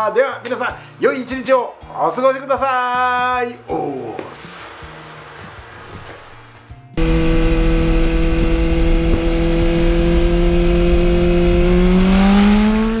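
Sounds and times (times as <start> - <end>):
vehicle engine revving: 4.8 - 13.0.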